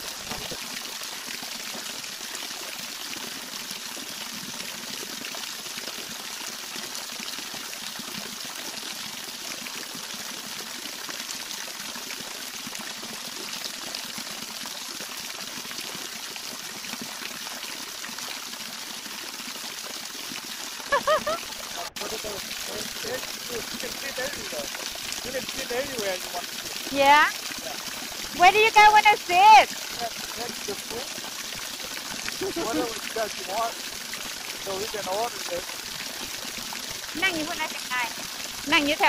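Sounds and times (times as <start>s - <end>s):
waterfall pouring over rocks: 0.0s - 39.0s.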